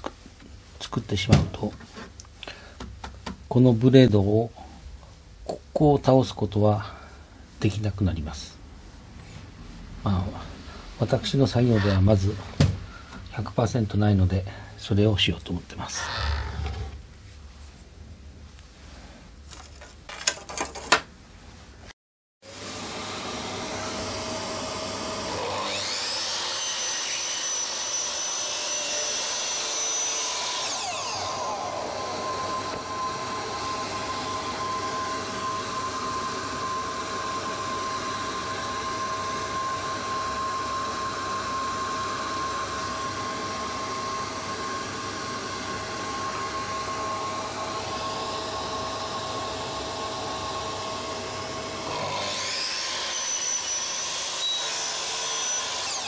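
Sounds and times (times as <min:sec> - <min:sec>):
shop vacuum running: 0:22.5 - 0:26.8, 0:27.9 - 0:56.0
miter saw motor whining: 0:23.8 - 0:27.2, 0:30.0 - 0:43.7, 0:47.4 - 0:56.0.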